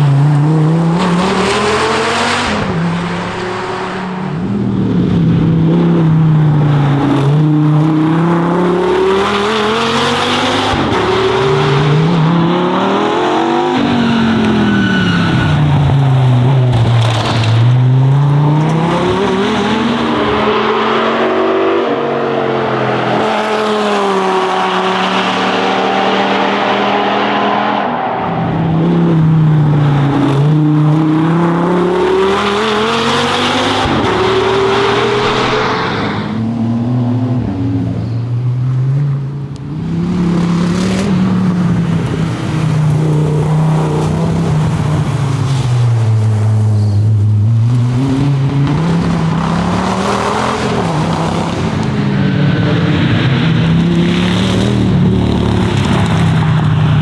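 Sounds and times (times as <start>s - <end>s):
race car engine revving: 0.0s - 38.0s, 38.7s - 57.0s.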